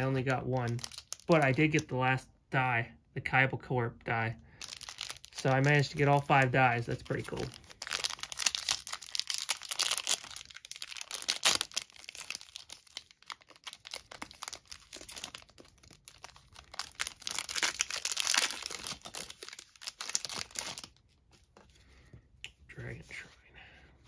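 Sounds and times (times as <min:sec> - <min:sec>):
foil wrapper tearing and crinkling: 0:00.0 - 0:01.8, 0:04.6 - 0:21.0.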